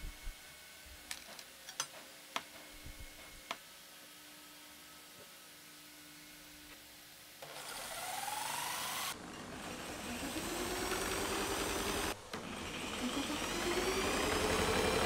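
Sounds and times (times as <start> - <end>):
angle grinder motor whine: 7.4 - 15.0.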